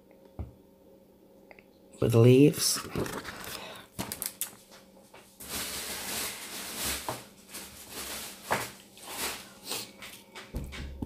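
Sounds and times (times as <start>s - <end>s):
paper rustling and sliding: 2.7s - 4.2s, 5.4s - 9.9s.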